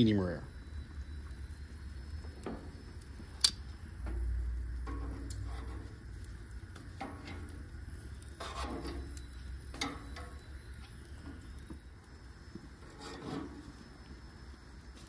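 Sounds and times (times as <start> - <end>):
low steady rumble: 0.0 - 14.9
metal tongs scraping grill grates: 4.8 - 10.4, 12.8 - 13.8.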